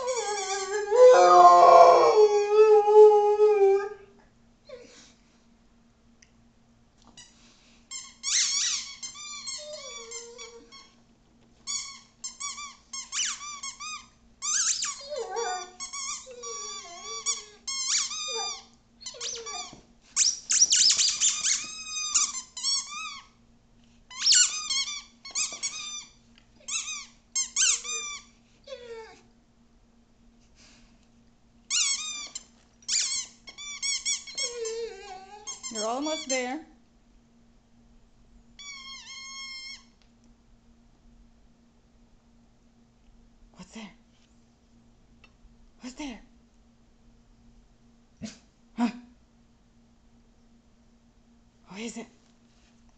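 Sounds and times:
rubber squeaky toy squeaking: 0:08.0 - 0:10.8, 0:11.7 - 0:23.2, 0:24.1 - 0:26.1, 0:26.7 - 0:28.2, 0:32.9 - 0:34.7, 0:35.5 - 0:36.3.

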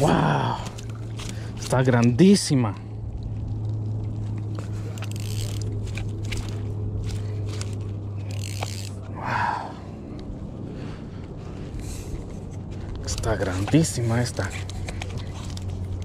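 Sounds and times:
landing net and rod rustling: 0:00.0 - 0:02.1, 0:04.1 - 0:09.2
steady low hum: 0:00.0 - 0:16.0.

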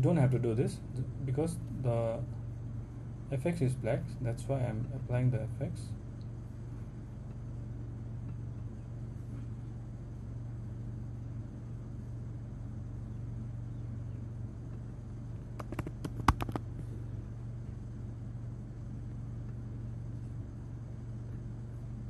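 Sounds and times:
low background hum: 0:00.0 - 0:22.0
computer keyboard typing: 0:15.6 - 0:16.6.

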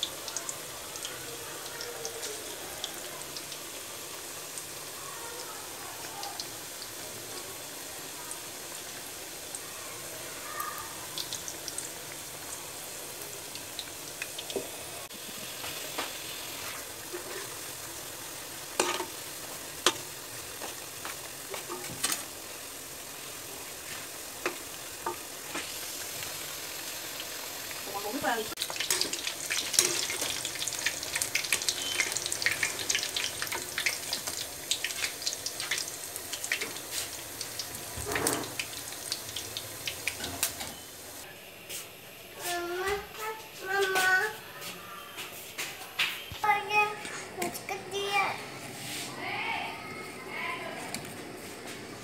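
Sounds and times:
deep-frying sizzle: 0:00.0 - 0:52.0.

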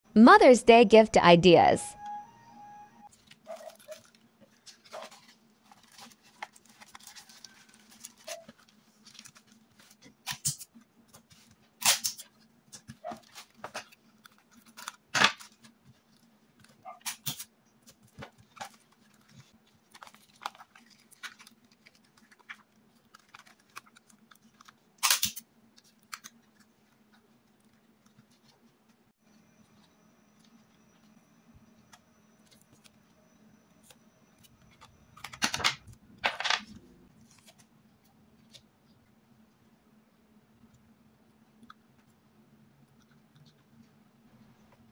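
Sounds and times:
paper banknotes rustling: 0:03.1 - 0:10.1, 0:18.0 - 0:24.8
plastic sleeve crinkling: 0:03.1 - 0:10.1, 0:18.3 - 0:24.8
faint steady hum: 0:17.5 - 0:44.9.

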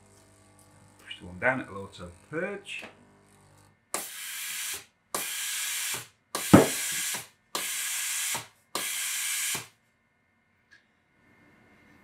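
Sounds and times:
sharp knock: 0:06.5 - 0:06.8.

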